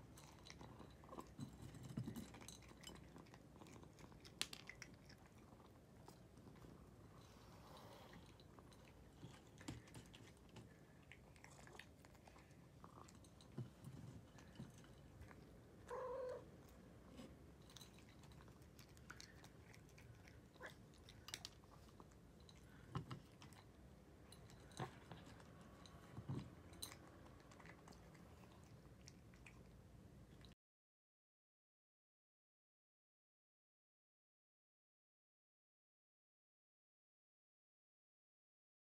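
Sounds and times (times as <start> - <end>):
cat chewing: 0.0 - 30.6
cat crying: 15.9 - 16.5.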